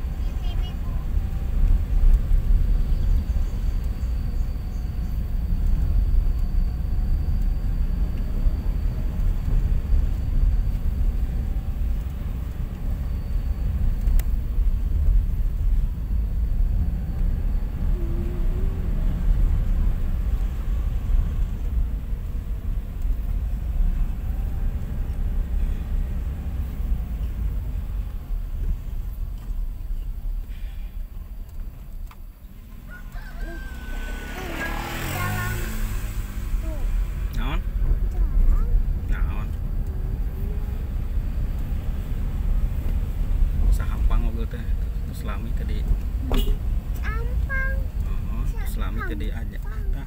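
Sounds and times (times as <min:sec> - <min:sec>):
car engine rumble: 0:00.0 - 0:50.0
tyres on the road: 0:00.0 - 0:50.0.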